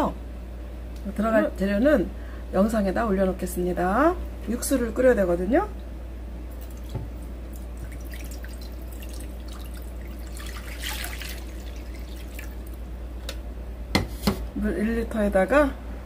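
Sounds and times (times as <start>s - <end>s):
water pouring into a pot: 7.6s - 12.8s.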